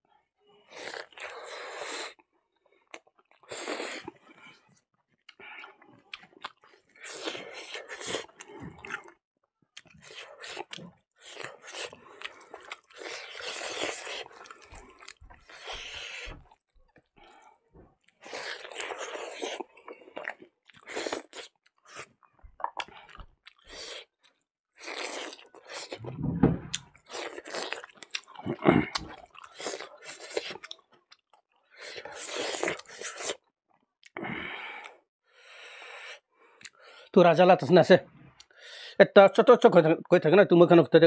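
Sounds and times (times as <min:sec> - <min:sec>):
person chewing: 0:00.7 - 0:02.2, 0:02.8 - 0:04.6, 0:05.2 - 0:09.2, 0:09.8 - 0:35.0, 0:36.4 - 0:36.9
dull low thump: 0:26.0 - 0:26.9.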